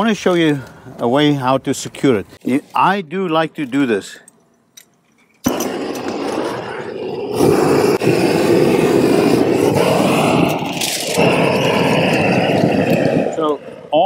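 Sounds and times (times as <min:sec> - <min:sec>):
torch flame rushing: 0:05.4 - 0:14.0
torch igniting: 0:05.4 - 0:14.0.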